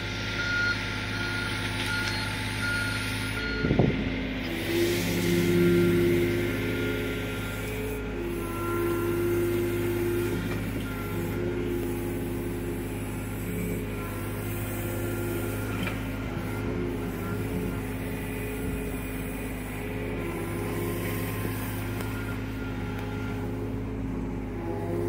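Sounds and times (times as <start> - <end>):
diesel engine running: 0.0 - 25.0.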